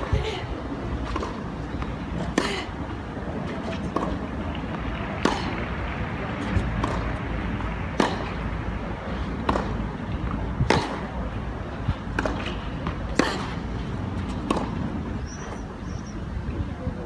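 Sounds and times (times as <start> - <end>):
outdoor rumble: 0.0 - 17.0
rackets striking tennis ball: 1.0 - 2.6, 3.4 - 15.1.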